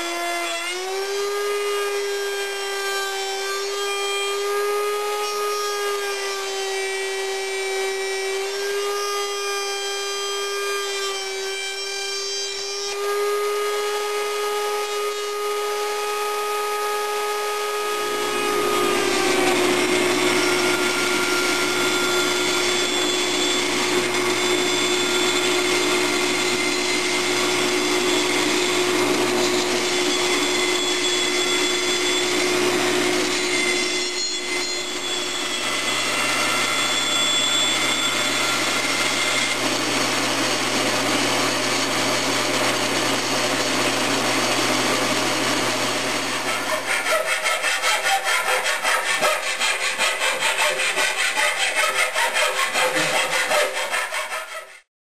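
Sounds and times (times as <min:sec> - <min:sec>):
band saw humming: 0:00.0 - 0:54.9
router whining: 0:00.0 - 0:54.9
saw blade rasping through wood: 0:17.8 - 0:40.0, 0:42.7 - 0:54.9.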